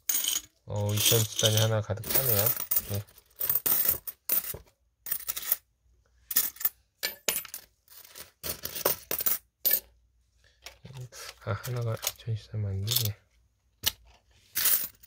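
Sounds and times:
coins clinking: 0.0s - 5.6s, 14.6s - 15.0s.

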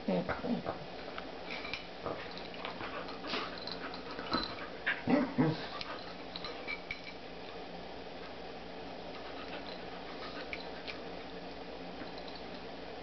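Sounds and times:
dogs scuffling and mouthing: 0.4s - 7.6s, 9.1s - 12.8s
dogs vocalizing while playing: 1.6s - 6.8s, 9.1s - 11.4s.

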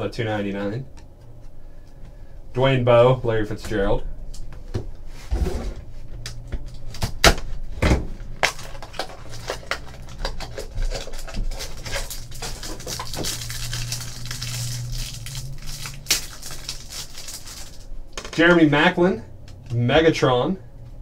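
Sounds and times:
plastic wrapping crinkling: 8.4s - 17.9s.

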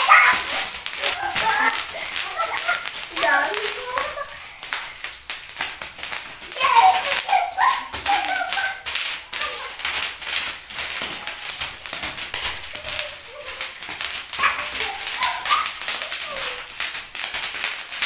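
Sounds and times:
bubble wrap popping: 0.0s - 18.0s
high-pitched yelps: 14.4s - 16.7s.

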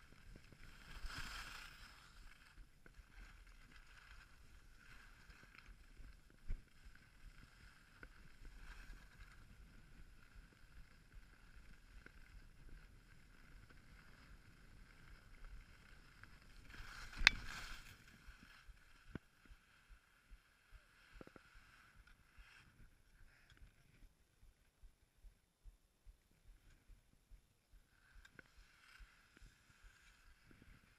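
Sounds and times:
skis scraping over snow: 0.1s - 19.4s.

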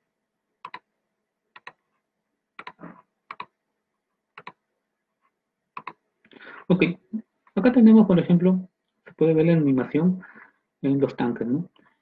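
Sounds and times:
computer mouse clicking: 0.6s - 0.8s, 1.6s - 1.8s, 2.6s - 3.5s, 4.4s - 4.6s, 5.8s - 6.0s.

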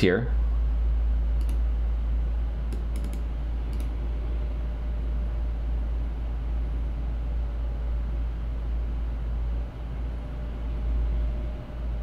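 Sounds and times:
steady low hum: 0.0s - 12.0s
faint computer input clicks: 2.7s - 3.9s.

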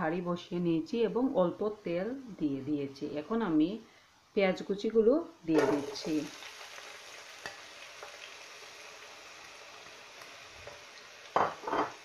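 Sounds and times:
onions sizzling in oil: 5.5s - 12.0s.

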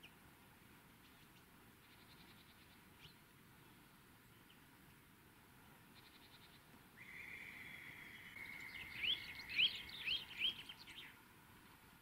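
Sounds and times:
bird singing whistles: 7.0s - 11.1s.

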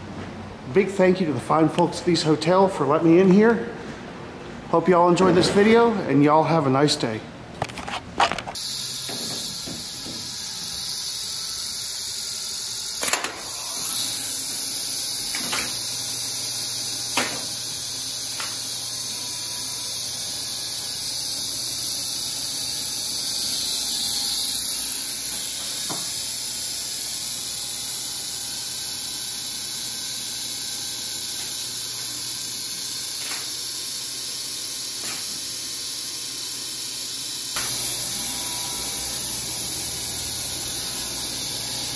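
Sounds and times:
elevator machinery hiss and hum: 8.5s - 41.9s.

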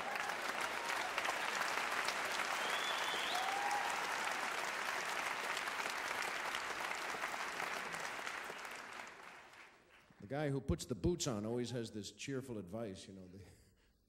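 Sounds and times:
audience applauding: 0.0s - 10.2s
person whistling or whooping: 2.6s - 3.9s.

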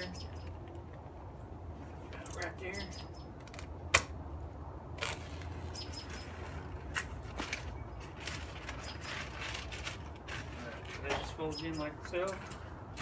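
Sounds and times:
plastic wrap crinkling: 6.3s - 11.0s.

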